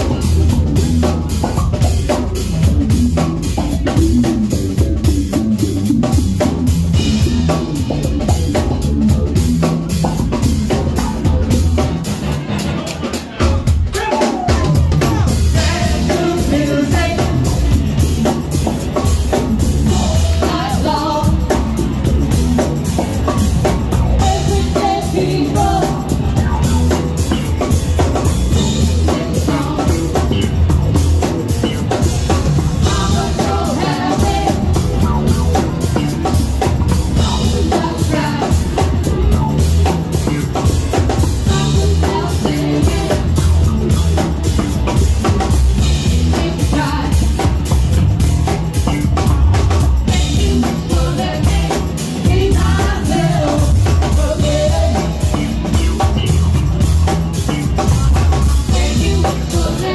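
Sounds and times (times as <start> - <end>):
drum kit beat: 0.0 - 59.9
electric bass guitar: 0.0 - 59.9
women singing: 14.5 - 17.8, 19.9 - 21.7, 24.2 - 26.5, 28.6 - 30.4, 32.8 - 35.3, 37.2 - 39.2, 41.4 - 43.5, 46.1 - 47.6, 50.1 - 55.6, 58.6 - 59.9.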